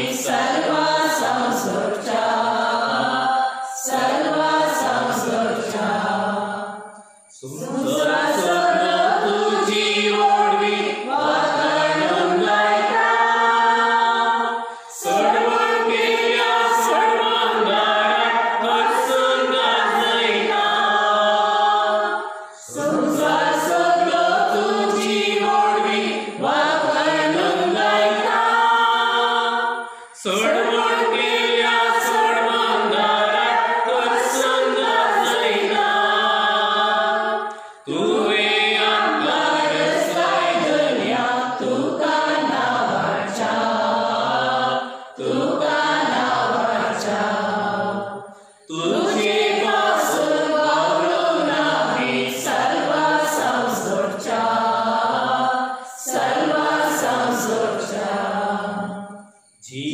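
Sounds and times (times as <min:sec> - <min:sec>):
voices singing a hymn: 0:00.0 - 0:59.9
singers breathing: 0:14.6 - 0:15.0, 0:29.8 - 0:30.2, 0:37.5 - 0:37.9.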